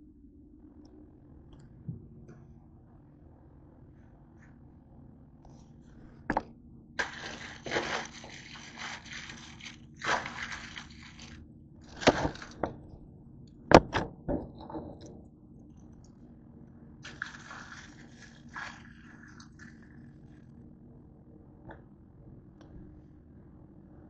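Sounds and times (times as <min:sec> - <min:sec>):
plastic packets crinkling: 0:07.0 - 0:12.6.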